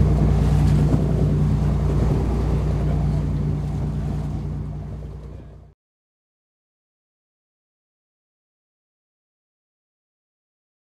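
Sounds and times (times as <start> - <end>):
wind buffeting the microphone: 0.0 - 5.5
low hum: 0.0 - 5.8
sea noise: 0.0 - 5.8.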